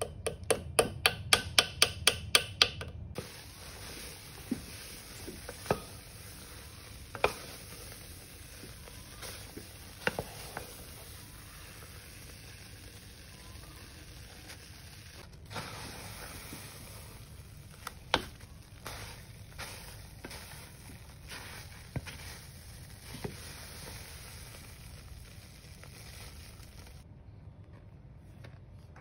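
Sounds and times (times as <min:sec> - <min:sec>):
spatula stirring thick paste: 0:03.2 - 0:25.4
steady hiss: 0:03.2 - 0:27.0.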